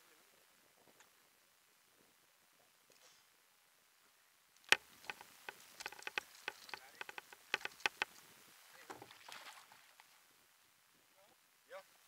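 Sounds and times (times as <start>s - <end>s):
soft rustle: 4.0s - 10.4s.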